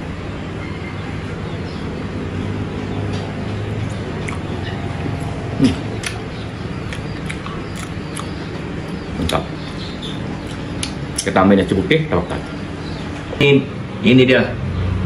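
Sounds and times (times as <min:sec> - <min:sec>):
steady low hum: 0:00.0 - 0:15.0
wet chewing: 0:04.1 - 0:11.3
lip-smacking clicks: 0:04.2 - 0:08.4, 0:10.4 - 0:11.3.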